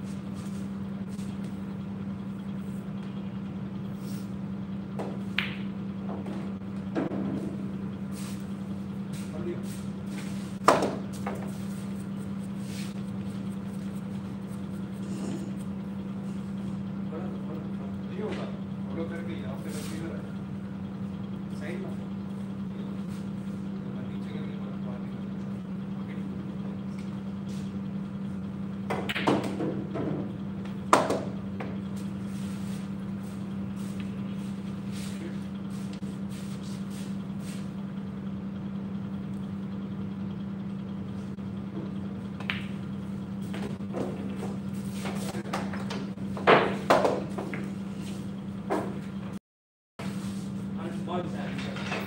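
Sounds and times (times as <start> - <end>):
steady low hum: 0.0 - 49.4, 50.0 - 52.0.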